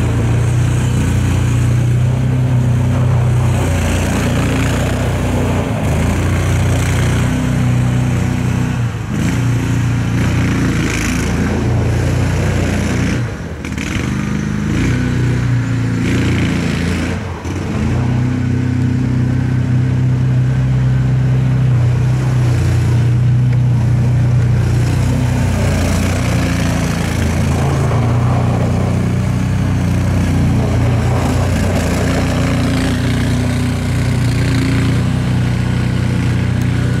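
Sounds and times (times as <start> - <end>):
vehicle engine running: 0.0 - 37.0
wheels hissing on snow: 23.8 - 37.0.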